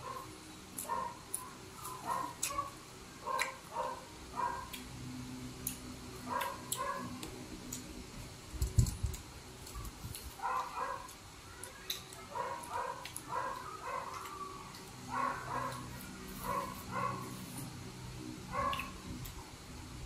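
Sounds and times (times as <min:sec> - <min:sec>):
wet chewing and lip smacks: 0:03.4 - 0:03.6, 0:10.1 - 0:15.0, 0:18.6 - 0:19.4.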